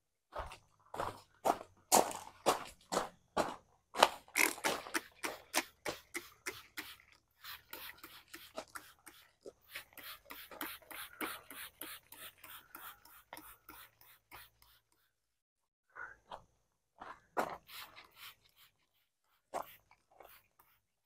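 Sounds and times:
spray bottle squirting: 0:04.2 - 0:15.0, 0:17.6 - 0:20.8.

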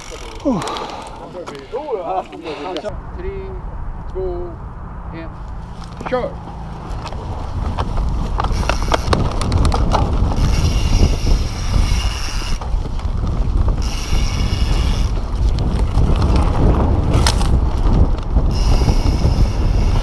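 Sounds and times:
bike rattling and knocking: 0:00.0 - 0:01.6, 0:05.7 - 0:20.0
wind rumble on microphone: 0:02.9 - 0:20.0
freewheel ticking buzz: 0:08.4 - 0:09.5, 0:10.3 - 0:12.7, 0:13.8 - 0:15.2, 0:18.4 - 0:20.0.

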